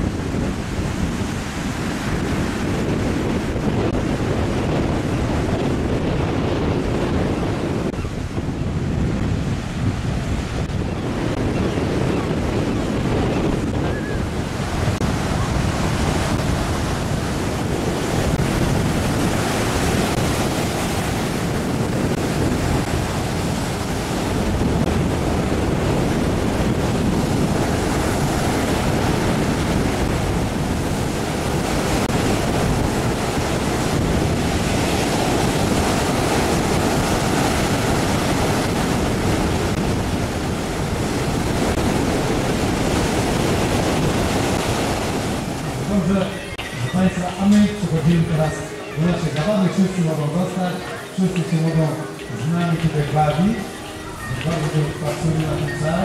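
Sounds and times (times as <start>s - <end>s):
waves breaking on a beach: 0.0s - 56.0s
wind noise on microphone: 0.0s - 56.0s.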